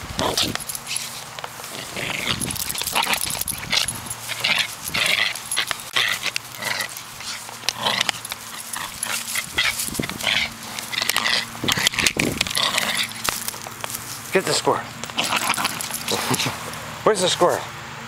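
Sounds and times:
dog making excited sounds: 1.8 - 13.5.

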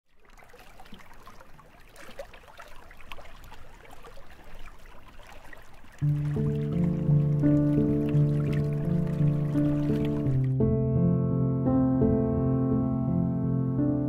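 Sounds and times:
water running and trickling: 0.1 - 10.6
music with held notes: 6.0 - 14.0.

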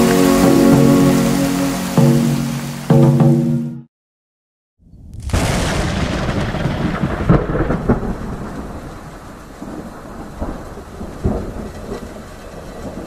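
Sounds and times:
steady rain: 0.0 - 3.4, 5.2 - 13.0
thunder rumbling: 4.8 - 13.0
sharp thunder cracks: 4.9 - 13.0.

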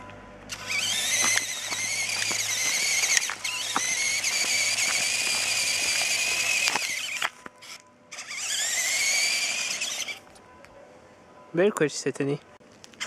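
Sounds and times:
electric toy motor whining: 0.5 - 10.2.

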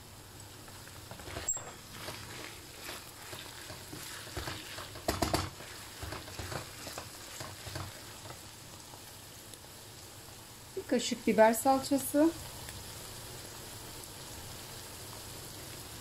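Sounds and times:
meat sizzling in a frying pan: 0.0 - 16.0
wooden spoon scraping a pan: 0.9 - 8.5.

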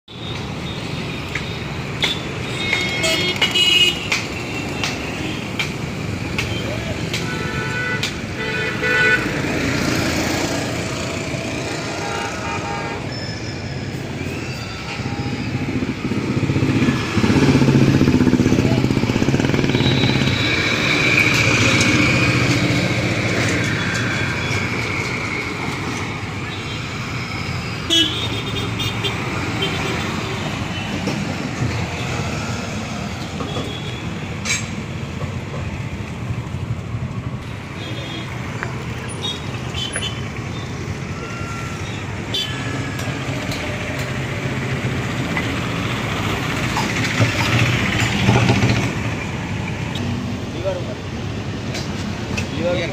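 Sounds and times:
vehicle engines running: 13.6 - 52.9.

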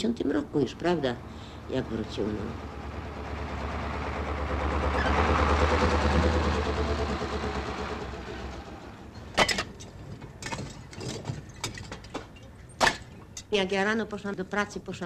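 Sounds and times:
lorry driving past on wet road: 1.2 - 9.1.

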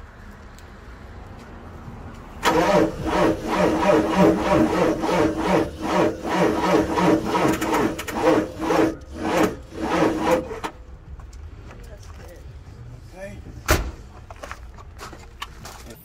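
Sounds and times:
starter motor cranking diesel engine: 2.4 - 10.8.

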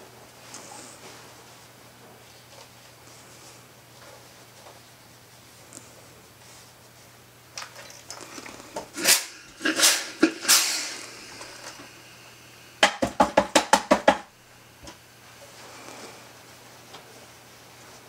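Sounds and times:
steam iron bursts of steam: 9.0 - 11.8.

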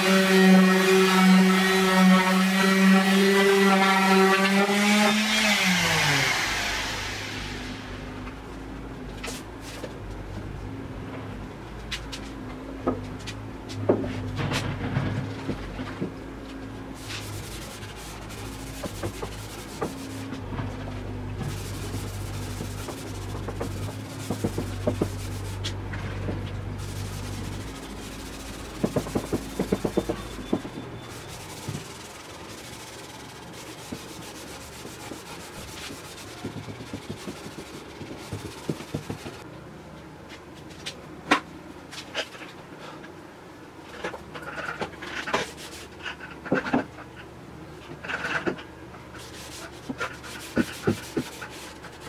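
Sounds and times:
steady low hum: 6.1 - 52.0
cloth rag rubbing wood: 17.0 - 20.3, 21.4 - 25.8, 26.8 - 39.4, 49.2 - 52.0.

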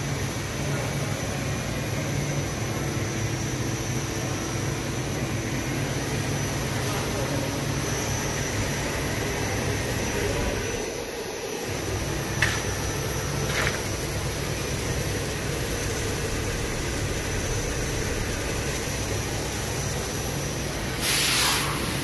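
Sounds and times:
machine drone and air rush: 0.0 - 22.0
burst of hiss: 20.9 - 22.0.

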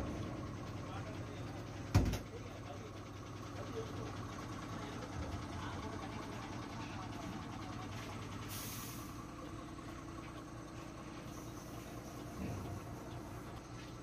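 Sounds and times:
diesel engine idling: 0.0 - 14.0
air hiss: 8.5 - 9.2.

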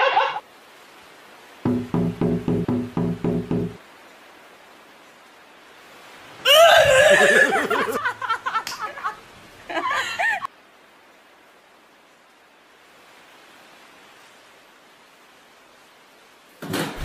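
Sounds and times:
woman laughing: 0.0 - 0.4, 6.5 - 10.5
knocks with low ringing tone: 1.7 - 3.8
woman shrieking: 6.5 - 7.7.

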